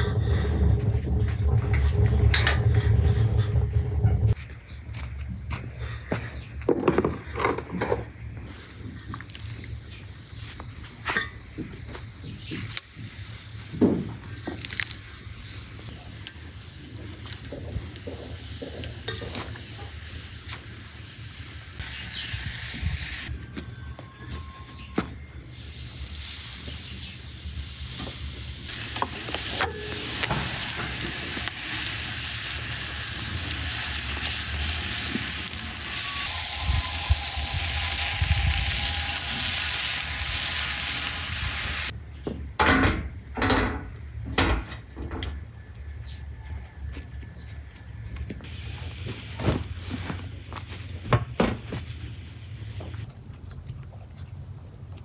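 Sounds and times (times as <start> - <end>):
food sizzling: 25.6 - 41.9.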